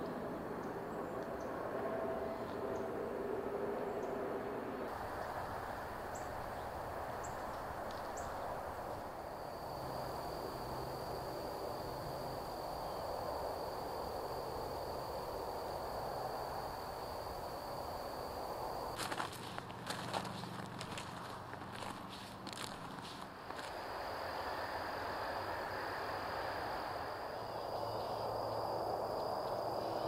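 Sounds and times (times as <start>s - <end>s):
high insect trill: 4.9s - 30.0s
footsteps crunching on trail: 18.9s - 23.8s
background hiss: 23.0s - 30.0s.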